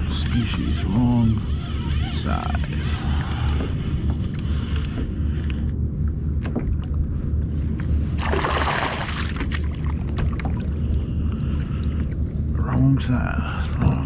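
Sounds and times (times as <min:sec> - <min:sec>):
steady low rumble: 0:00.0 - 0:14.0
fish splashing in water: 0:08.2 - 0:10.8.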